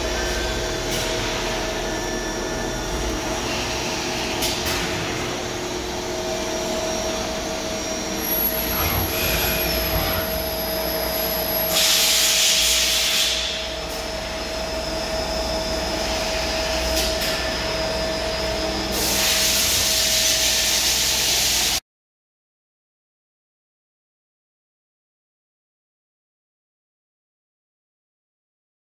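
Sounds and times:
machine hum: 0.0 - 21.8.

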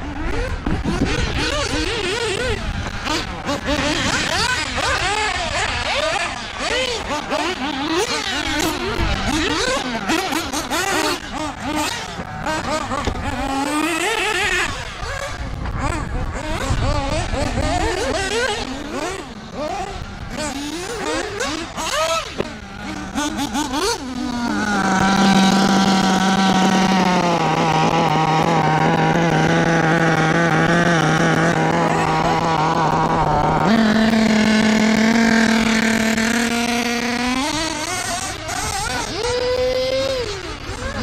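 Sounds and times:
nitro engine revving: 0.0 - 41.0.

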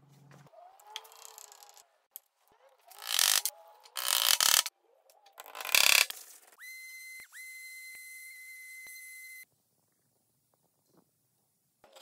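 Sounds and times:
sander motor whine: 6.6 - 9.5.

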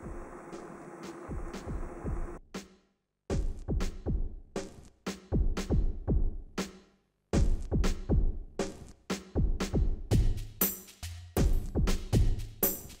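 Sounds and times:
electronic music with drum-machine beat: 0.0 - 2.4, 7.4 - 13.0.

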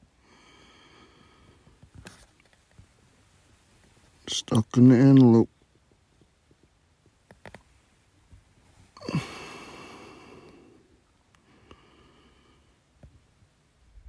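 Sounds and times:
person sighing heavily: 9.0 - 10.9.

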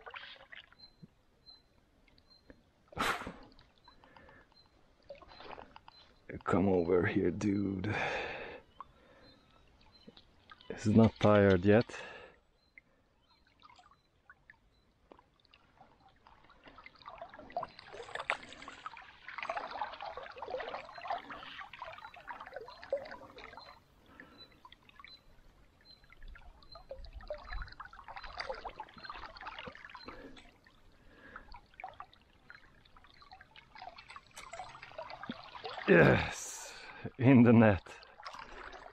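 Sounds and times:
water splashing and trickling: 0.0 - 38.9
landing net moving through water: 15.9 - 23.7.

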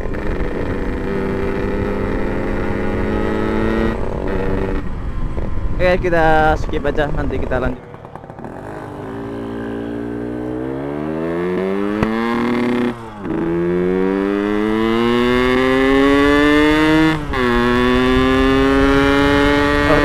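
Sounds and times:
two-stroke motorcycle engine accelerating: 0.0 - 5.7, 6.7 - 20.0.

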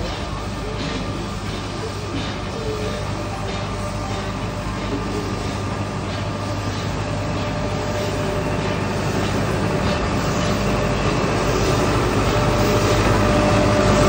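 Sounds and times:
steady whine: 0.0 - 14.0
steam locomotive rumble: 0.0 - 14.0.

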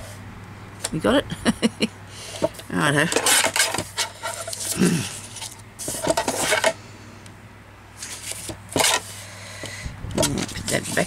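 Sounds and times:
paper rustling and scraping: 2.3 - 6.8, 8.0 - 9.2, 10.2 - 11.0.

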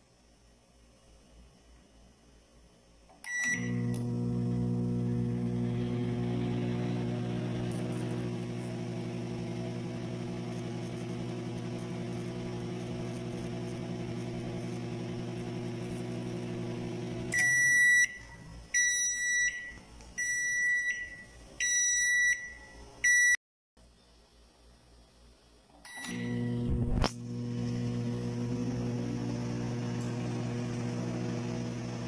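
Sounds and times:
microwave oven beeps: 3.2 - 12.8, 13.6 - 23.4, 25.9 - 32.0
transformer mains hum: 3.5 - 17.4.

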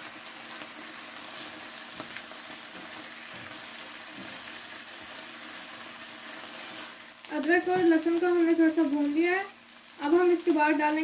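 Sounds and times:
chicken sizzling in oil: 0.0 - 11.0.

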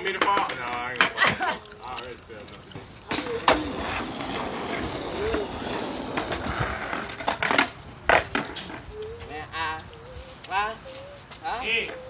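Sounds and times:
skateboard clacking on concrete: 0.0 - 9.4
skateboard wheels rolling on concrete: 0.0 - 12.0.

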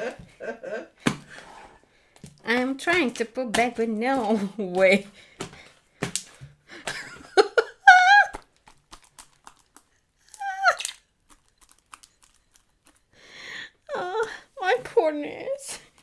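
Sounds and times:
slime squeezed by hand: 8.7 - 12.3.

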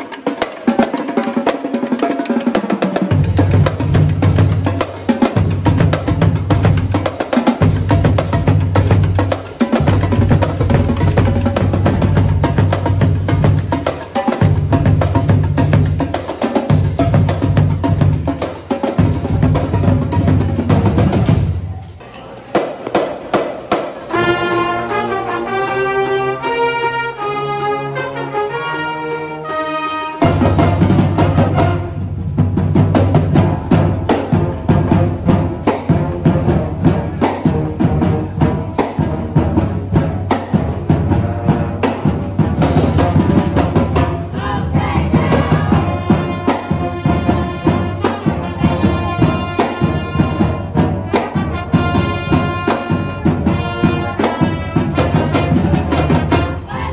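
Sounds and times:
bass drums and percussion: 0.0 - 26.4, 30.2 - 56.9
marching band playing: 0.0 - 56.9
trumpet melody: 24.1 - 32.4, 44.8 - 56.9.

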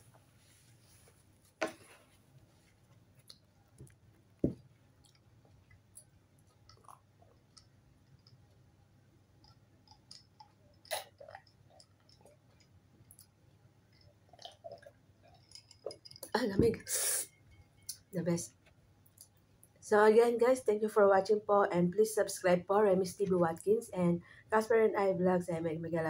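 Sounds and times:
person drinking and swallowing: 6.6 - 7.7, 9.9 - 13.3, 13.9 - 17.1.

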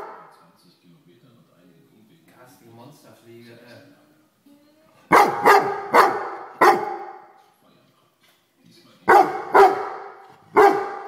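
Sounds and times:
dog barking: 0.0 - 0.3, 5.1 - 7.4, 9.1 - 11.0.

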